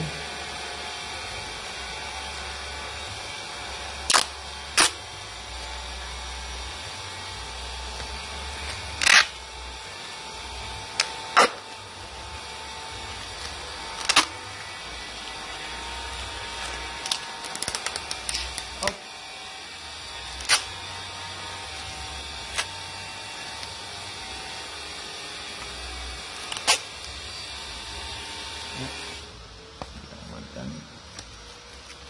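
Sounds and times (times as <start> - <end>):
packaging clicks and rustles: 16.6 - 18.8.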